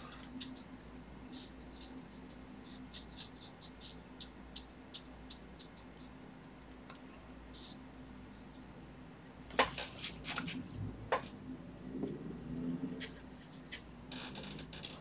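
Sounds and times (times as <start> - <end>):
brush dabbing on paper: 0.1 - 6.2.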